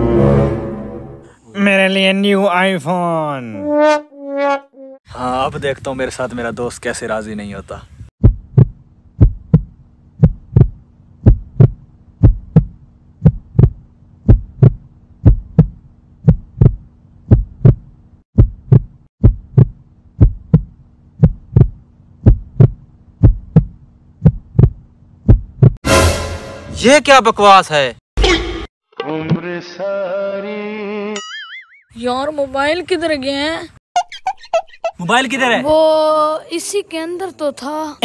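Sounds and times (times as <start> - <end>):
heartbeat thumps: 8.2 - 25.8.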